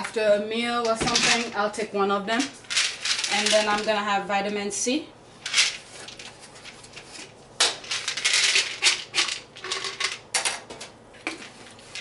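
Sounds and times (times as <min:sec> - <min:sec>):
pills rattling in bottle: 0:02.6 - 0:04.0, 0:07.8 - 0:10.2.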